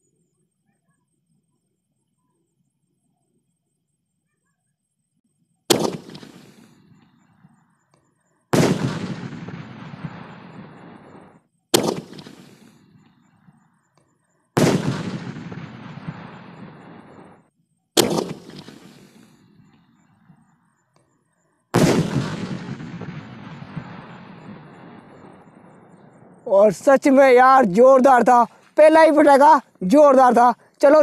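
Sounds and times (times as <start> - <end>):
firework bangs: 5.7 - 7.7, 8.4 - 13.8, 14.5 - 20.8, 21.6 - 31.0.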